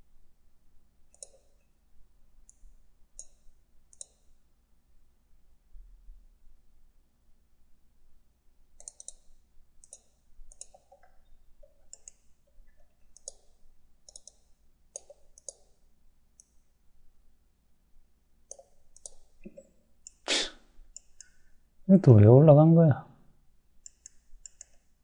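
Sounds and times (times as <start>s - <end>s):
computer mouse clicking: 1.1s - 1.7s, 2.4s - 4.3s, 8.8s - 15.8s, 16.4s - 16.6s, 18.4s - 20.2s, 20.9s - 21.4s, 23.8s - 25.0s.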